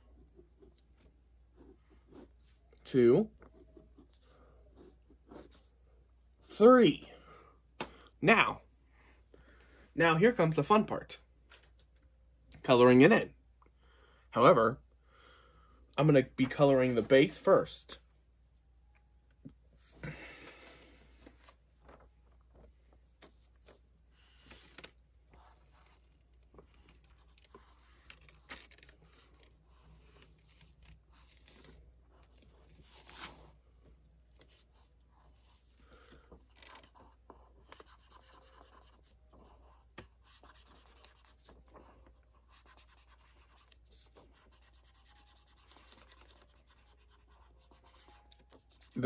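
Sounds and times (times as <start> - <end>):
marker scratching on paper: 25.3 - 33.6, 34.4 - 49.0.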